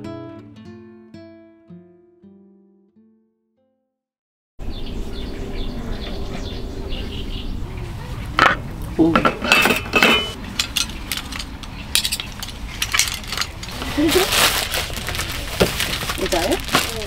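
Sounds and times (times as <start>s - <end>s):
cutlery and dishes clinking: 8.4s - 13.8s.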